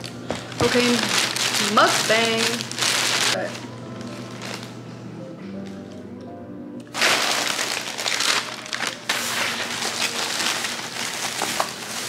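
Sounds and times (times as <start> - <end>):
plastic bag crinkling: 0.4 - 4.7, 6.9 - 12.0.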